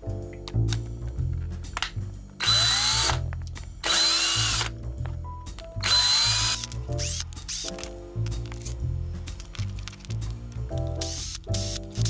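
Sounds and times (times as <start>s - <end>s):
screw gun motor whine: 2.4s - 3.2s, 3.8s - 4.7s, 5.8s - 7.7s, 11.0s - 11.5s.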